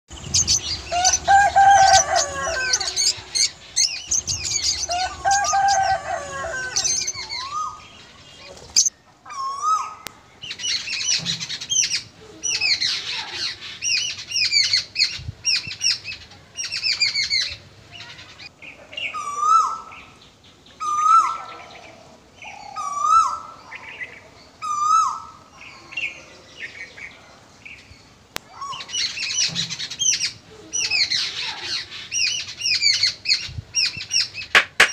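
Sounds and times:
lower longer bird calls: 0:00.1 - 0:27.1
small birds chirping: 0:00.1 - 0:34.9
rise-and-fall bird call: 0:00.3 - 0:10.0.

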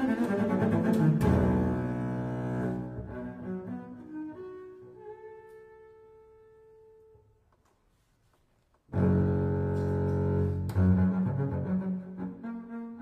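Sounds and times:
bowed double bass: 0:00.0 - 0:05.8, 0:08.9 - 0:13.0.

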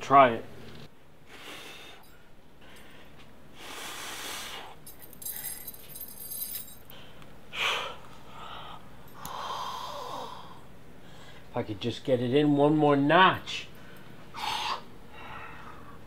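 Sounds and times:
man breathing: 0:01.2 - 0:05.8, 0:06.8 - 0:11.5, 0:13.8 - 0:16.0
metallic chain jingle: 0:04.8 - 0:06.9.

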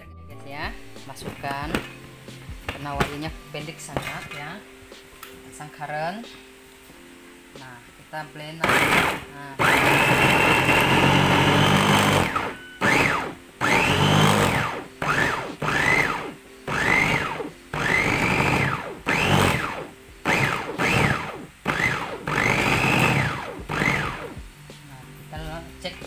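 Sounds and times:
food chopper motor whine: 0:08.6 - 0:24.5.

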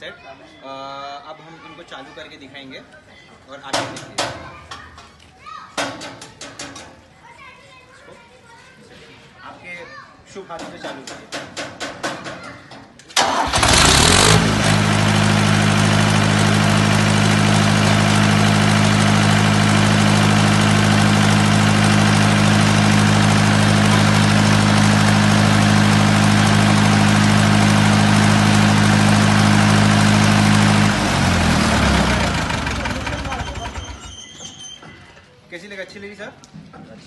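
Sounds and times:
electric starter cranking: 0:13.2 - 0:34.4
diesel generator running: 0:13.2 - 0:34.9.

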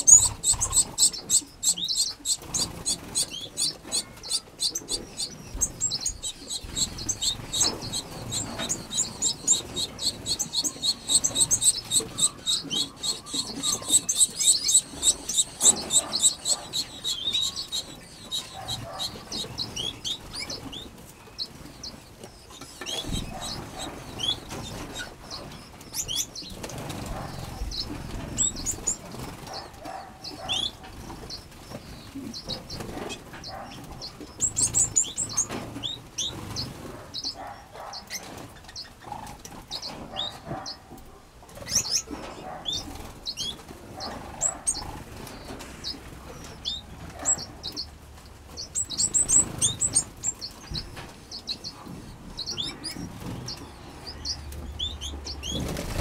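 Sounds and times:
wings fluttering: 0:00.0 - 0:20.9, 0:55.3 - 0:56.0
finches chirping: 0:00.0 - 0:40.8, 0:41.6 - 0:47.9, 0:48.5 - 0:56.0.

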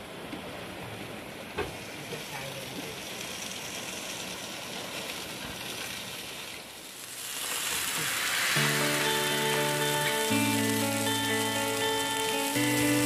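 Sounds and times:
fish sizzling in oil: 0:06.8 - 0:13.0
background music: 0:08.5 - 0:13.0.

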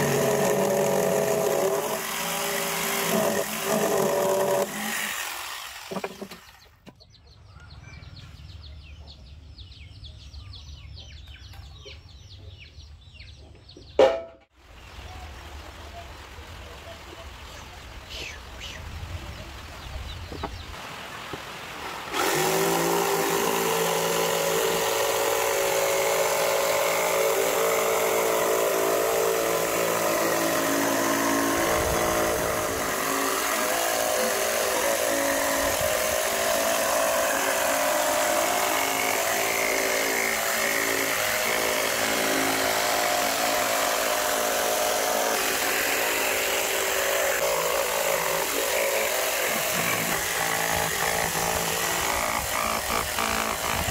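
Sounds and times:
electric jigsaw cutting wood: 0:00.0 - 0:06.6, 0:21.9 - 0:53.9.

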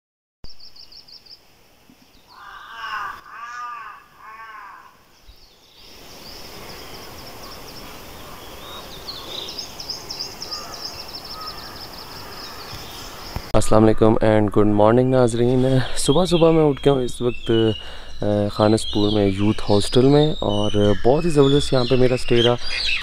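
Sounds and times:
small birds chirping: 0:00.4 - 0:23.0
background hiss: 0:00.5 - 0:23.0
crow cawing: 0:02.3 - 0:05.1, 0:07.2 - 0:13.4.

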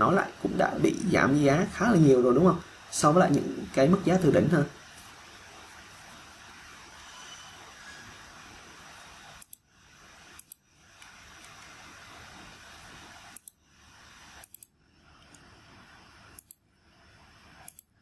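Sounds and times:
faint microphone hiss: 0:00.0 - 0:18.0
mouse scroll wheel clicking: 0:09.4 - 0:09.6, 0:10.3 - 0:11.7, 0:13.3 - 0:13.6, 0:14.4 - 0:15.5, 0:16.4 - 0:16.6, 0:17.6 - 0:17.9.

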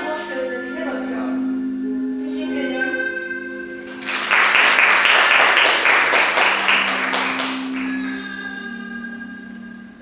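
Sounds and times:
soft background music: 0:00.0 - 0:10.0
audience applauding: 0:03.8 - 0:08.2.

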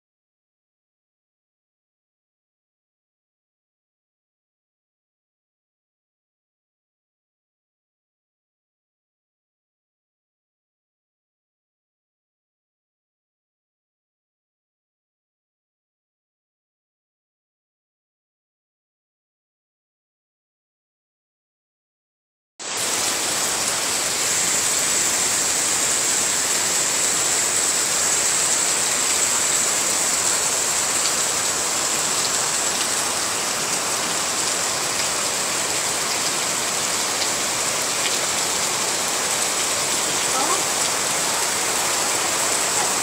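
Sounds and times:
heavy rain falling: 0:22.6 - 0:43.0.

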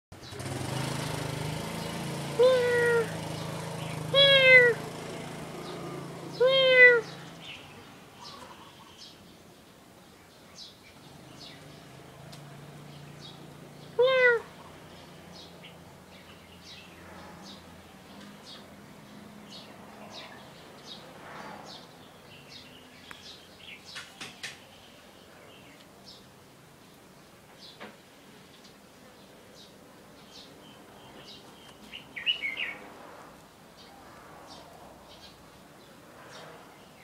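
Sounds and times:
cat meowing: 0:02.4 - 0:03.1, 0:04.2 - 0:04.8, 0:06.4 - 0:07.2, 0:14.0 - 0:14.5.

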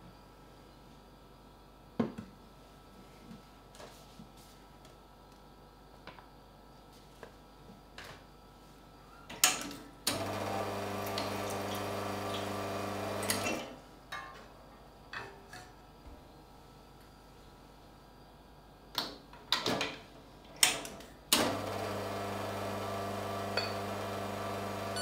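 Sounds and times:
espresso machine pump hum: 0:10.1 - 0:13.6, 0:21.4 - 0:25.0.

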